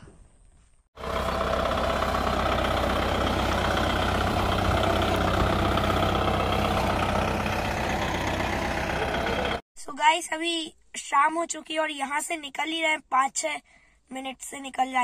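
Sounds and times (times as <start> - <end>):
tractor diesel engine running: 1.0 - 9.6.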